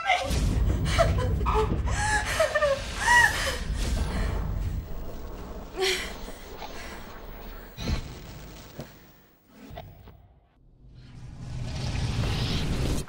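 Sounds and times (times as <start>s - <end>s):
low rumble: 0.3s - 8.8s.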